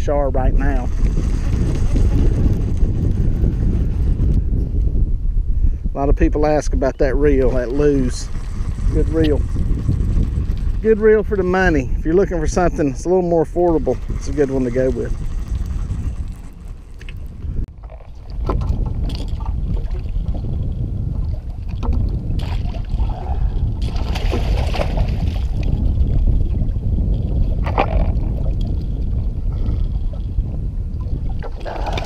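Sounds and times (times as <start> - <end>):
steady low rumble: 0.0 - 32.0
fish thrashing and splashing: 21.4 - 25.8.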